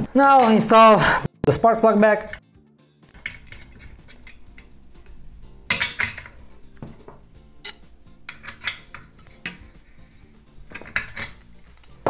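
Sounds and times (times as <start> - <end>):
metal tools clinking: 5.7 - 6.5, 7.6 - 9.7, 10.7 - 12.0.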